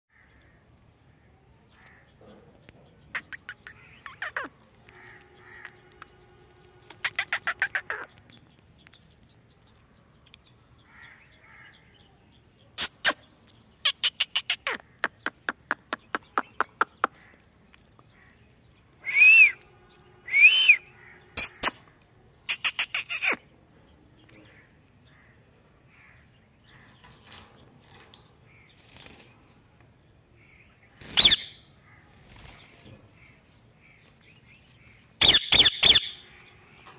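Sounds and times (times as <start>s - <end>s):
parakeet short loud calls: 7.0s - 8.1s.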